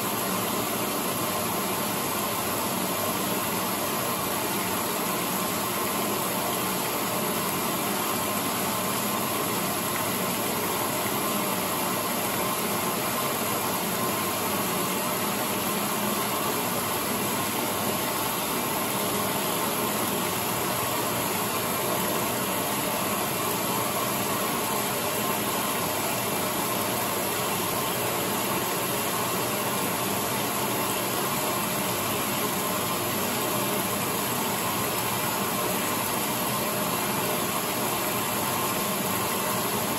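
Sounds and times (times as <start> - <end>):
washing machine running: 0.0 - 39.9.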